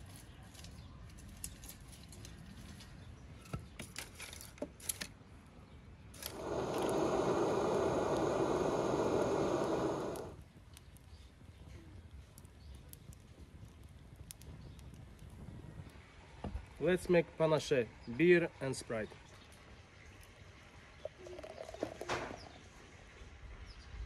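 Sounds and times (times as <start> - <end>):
spray can hissing: 6.2 - 10.4.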